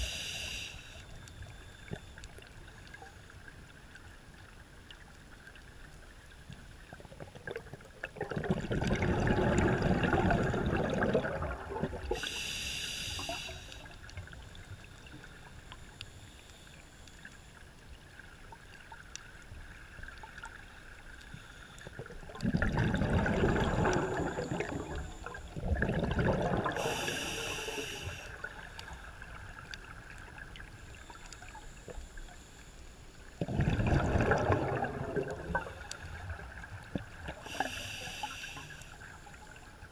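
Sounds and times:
regulator hiss on inhale: 0.0s - 1.9s, 12.0s - 17.4s, 26.6s - 29.2s, 37.2s - 39.5s
exhaled bubbles rumbling underwater: 0.0s - 16.1s, 17.2s - 32.6s, 33.2s - 39.9s.

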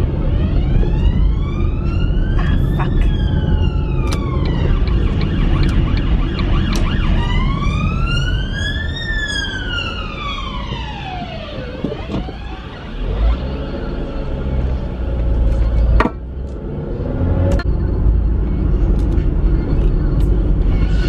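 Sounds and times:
siren wailing: 0.0s - 14.4s
road noise rumble: 0.0s - 21.0s.

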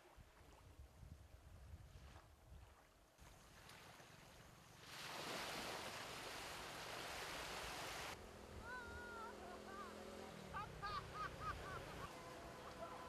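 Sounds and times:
surf hissing on beach: 4.7s - 13.0s.

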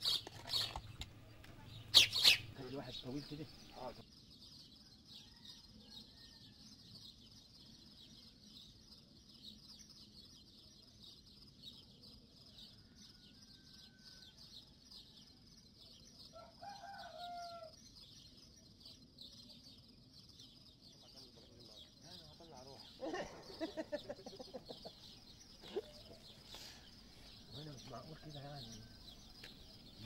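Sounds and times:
small birds chirping: 0.0s - 30.0s
rooster crowing: 16.3s - 17.7s.

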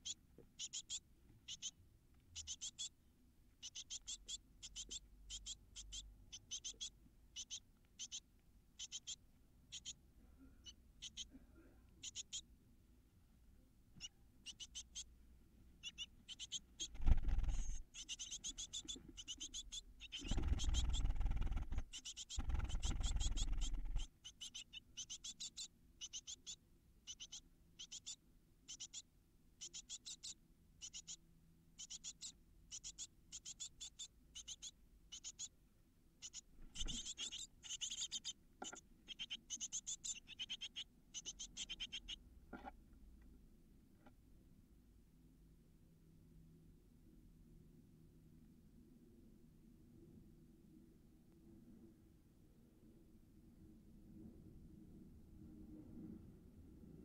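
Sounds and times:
nestlings cheeping: 2.4s - 2.9s, 14.4s - 15.1s, 15.8s - 29.0s, 36.2s - 42.2s
chicks scuffling and rustling: 16.9s - 17.8s, 20.2s - 24.1s.

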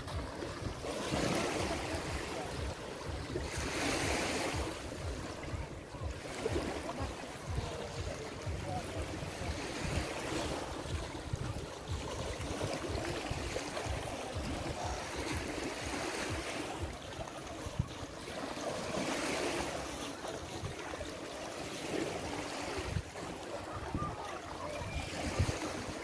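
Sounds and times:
wind buffeting microphone: 0.0s - 16.9s, 22.7s - 26.0s
waves washing onto sandy beach: 0.0s - 26.0s.

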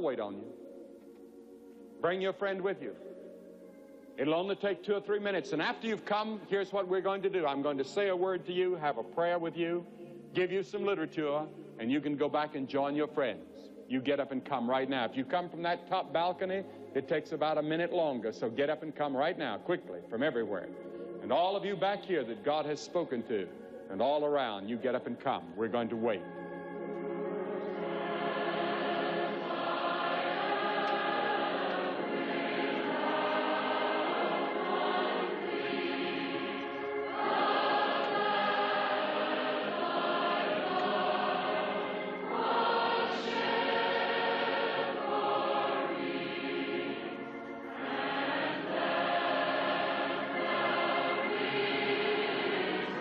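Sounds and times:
choir singing a hymn: 0.0s - 53.0s.

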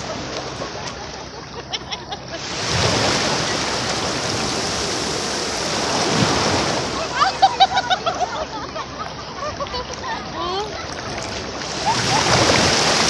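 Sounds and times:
small waves breaking on sand: 2.4s - 8.5s, 11.1s - 13.0s.

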